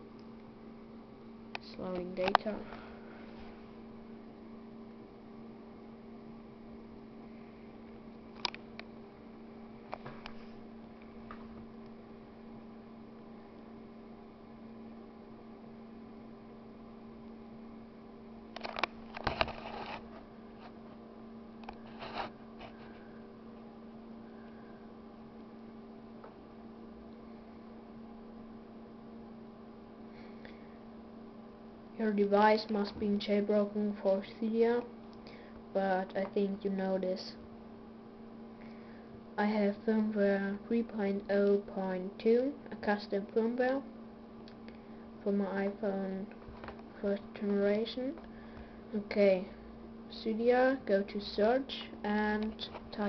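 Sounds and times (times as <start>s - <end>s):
steady electrical hum: 0.0s - 53.0s.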